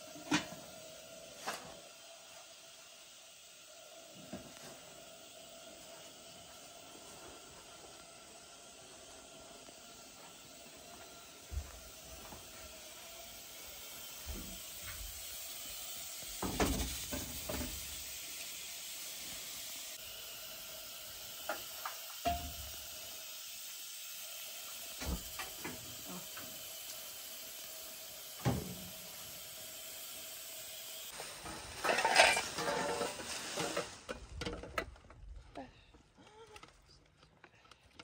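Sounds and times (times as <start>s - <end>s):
gas burner hissing: 0.0s - 35.1s
metal pot and lid clanking: 22.2s - 22.7s, 31.7s - 33.2s
metal clatter: 31.5s - 35.0s.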